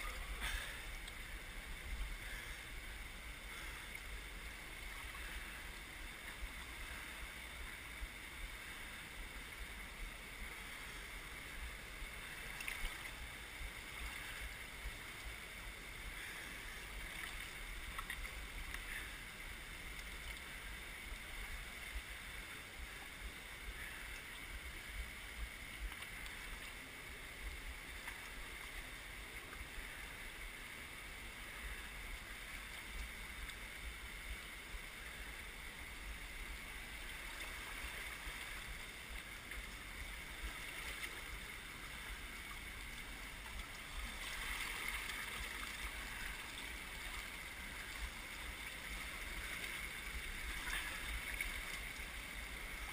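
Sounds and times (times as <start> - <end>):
river water rushing over rocks: 0.0 - 52.9.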